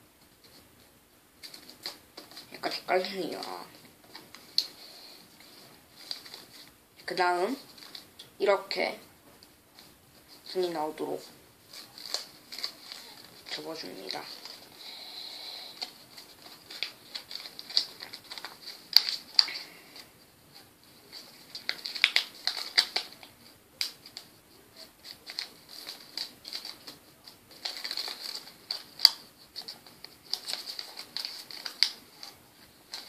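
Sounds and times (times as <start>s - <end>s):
paper being folded and creased: 1.4s - 6.7s, 11.7s - 33.0s
paper snaps: 21.5s - 24.3s, 25.0s - 33.0s.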